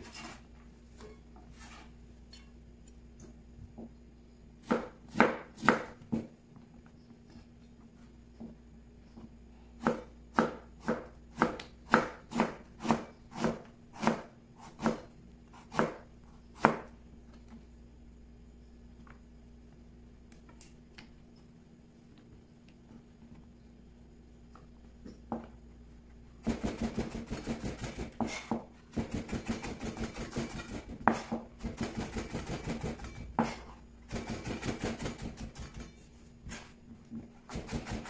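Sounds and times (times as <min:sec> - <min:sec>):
knife chopping on cutting board: 0:04.6 - 0:06.3, 0:09.8 - 0:16.0, 0:16.6 - 0:16.9, 0:30.3 - 0:31.9.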